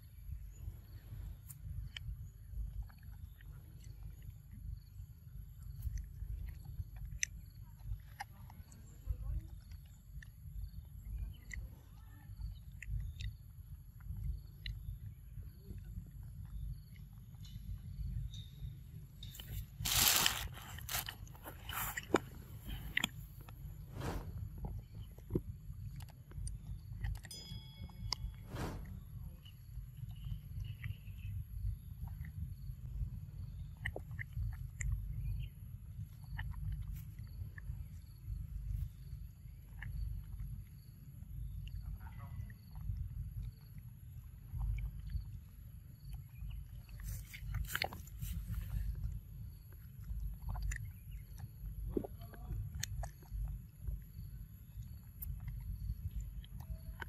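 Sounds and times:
insects chirping: 0.0 - 57.0
low rumble: 12.8 - 27.2, 27.8 - 36.2
monkey chewing fruit: 19.3 - 27.4, 42.5 - 57.0.

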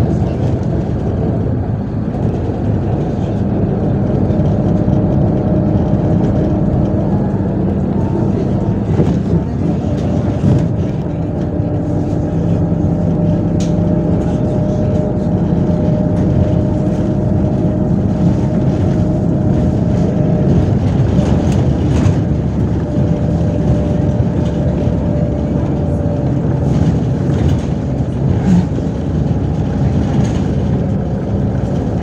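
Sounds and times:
bus engine drone: 0.0 - 32.0.

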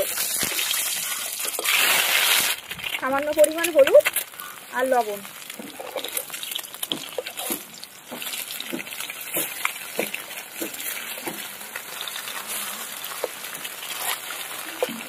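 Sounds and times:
eggs sizzling in hot oil: 0.0 - 15.0
metal spatula scraping a pan: 9.2 - 15.0.

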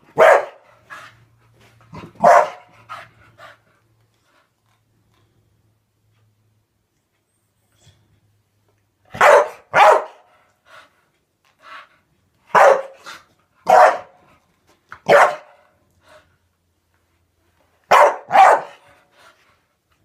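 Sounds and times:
dog barking sharply: 0.2 - 0.6, 2.2 - 2.7, 9.1 - 10.3, 12.5 - 14.2, 15.0 - 15.6, 17.9 - 18.8.

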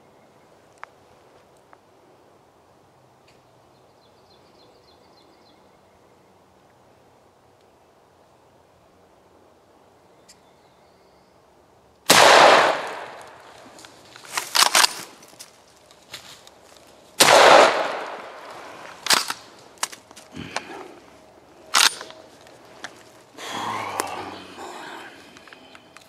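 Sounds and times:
shotgun blasts: 12.1 - 13.3, 17.2 - 18.4.

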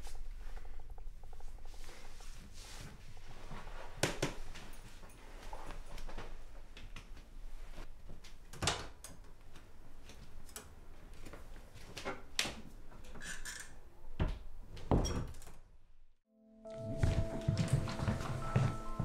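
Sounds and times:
soft footsteps: 16.7 - 19.0.

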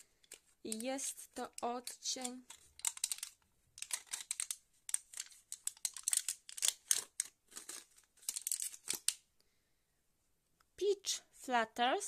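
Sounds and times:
packaging crinkling: 0.2 - 9.2.

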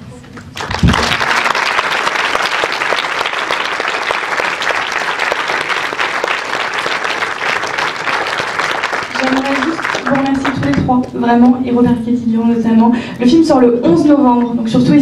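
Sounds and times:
audience applause: 0.3 - 11.1.

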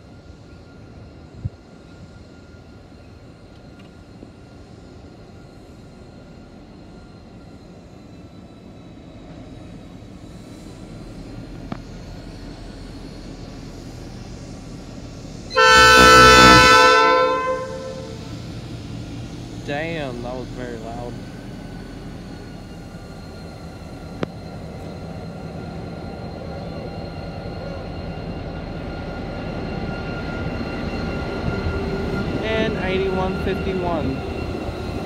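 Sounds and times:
diesel locomotive engine rumble: 0.0 - 35.0
locomotive horn blast: 15.5 - 18.4.

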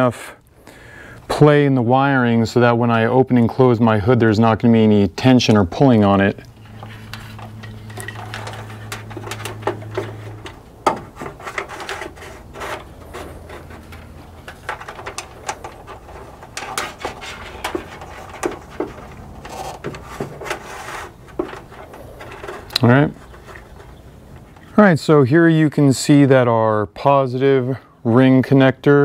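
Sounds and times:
steady low hum: 0.0 - 29.0
wire rubbing against sheet metal: 6.4 - 24.6.

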